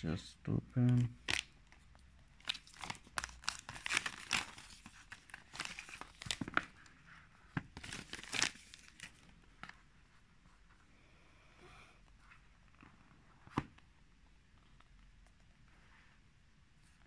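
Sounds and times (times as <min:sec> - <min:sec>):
plastic wrap being torn off: 0:02.4 - 0:06.4.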